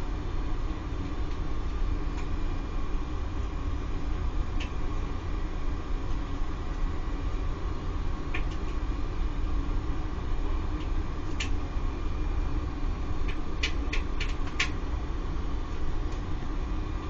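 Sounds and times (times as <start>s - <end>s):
circulation pump humming: 0.0s - 17.0s
sharp clicks: 13.3s - 14.8s.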